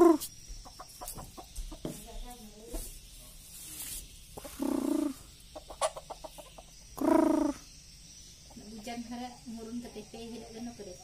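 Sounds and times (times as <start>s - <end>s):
rooster clucking: 4.4s - 7.6s.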